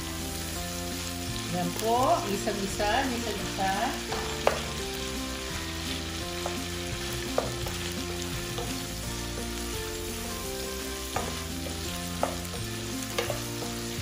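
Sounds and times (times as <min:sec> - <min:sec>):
food sizzling in oil: 0:00.0 - 0:14.0
wooden spatula knocking pot: 0:04.1 - 0:04.8, 0:07.3 - 0:08.8, 0:11.0 - 0:13.7.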